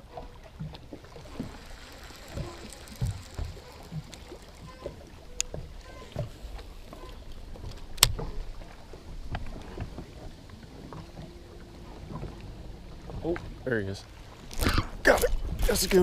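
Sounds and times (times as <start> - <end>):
low boat rumble: 0.0 - 16.0
fishing reel clicks and knocks: 0.7 - 8.2
short steady hum: 1.0 - 7.3.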